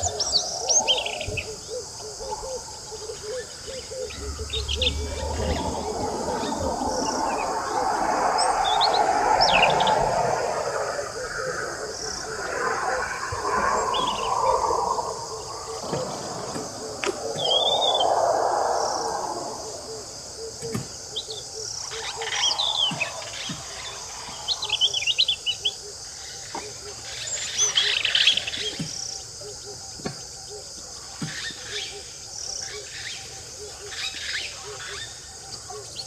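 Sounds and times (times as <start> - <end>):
robin singing: 0.0 - 18.2
low rushing noise: 4.1 - 21.0.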